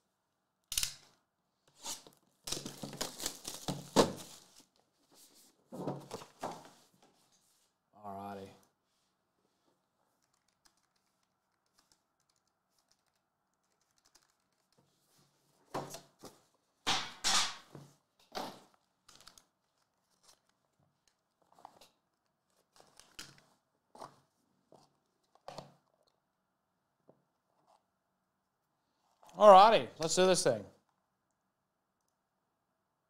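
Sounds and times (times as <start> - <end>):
cardboard and plastic rustling: 2.5 - 7.4, 17.8 - 25.8.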